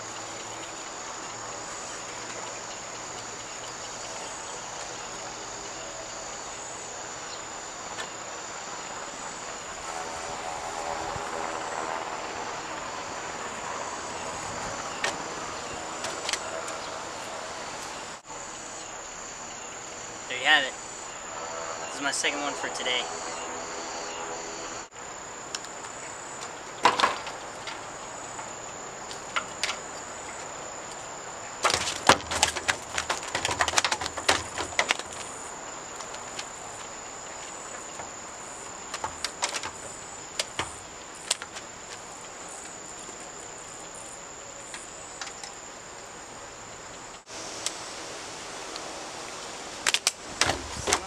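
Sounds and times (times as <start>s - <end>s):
insects chirring: 0.0s - 51.0s
clicks and knocks on wooden deck: 31.6s - 35.3s, 38.9s - 41.6s.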